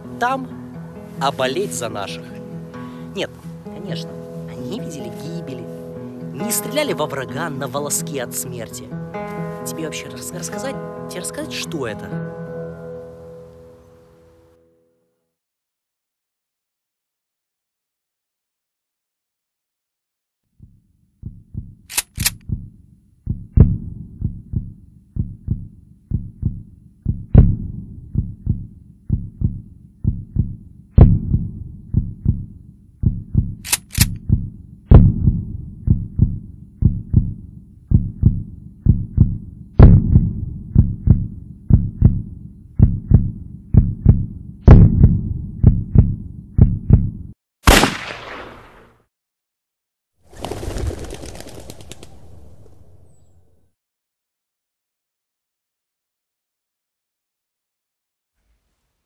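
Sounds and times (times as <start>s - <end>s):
heartbeat low thumps: 20.6s - 47.4s
sharp high clicks: 21.9s - 22.5s, 33.6s - 34.2s.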